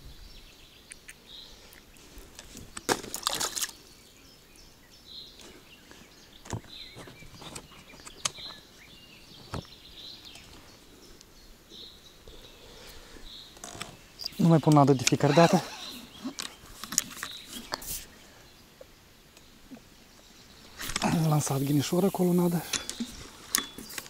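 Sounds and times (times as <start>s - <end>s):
water splash: 2.9s - 3.8s.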